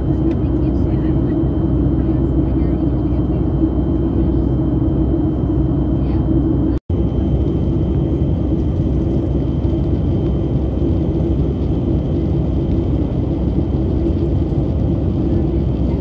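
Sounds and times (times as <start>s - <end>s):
constant hum: 0.0s - 16.0s
jet engines and rushing air: 0.0s - 16.0s.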